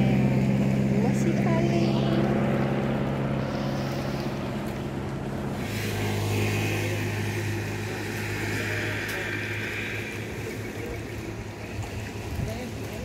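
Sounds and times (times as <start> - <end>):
choppy water: 0.0 - 13.0
low engine drone: 0.0 - 13.0
wind hiss: 3.3 - 12.8.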